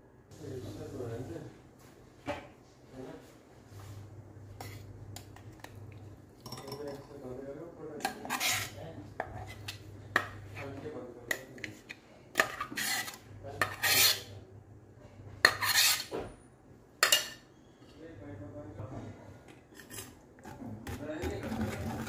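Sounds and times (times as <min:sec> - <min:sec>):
metal spoon scraping and clinking: 0:08.0 - 0:14.3, 0:15.4 - 0:16.1, 0:19.7 - 0:20.2.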